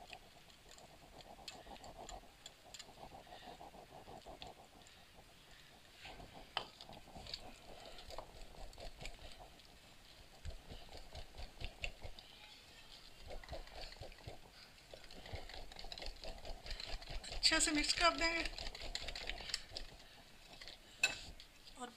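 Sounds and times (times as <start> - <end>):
whisk clicking against glass bowl: 0.0 - 5.4.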